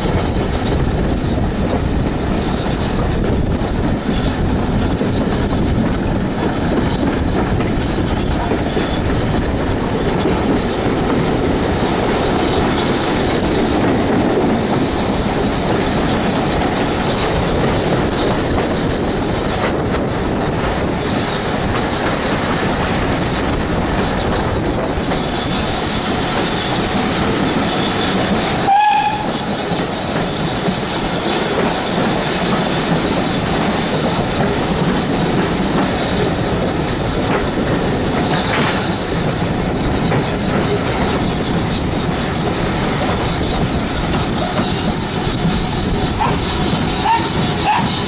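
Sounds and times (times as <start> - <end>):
train wheels rumbling on track: 0.0 - 48.0
train whistle toot: 28.6 - 29.5, 47.0 - 48.0.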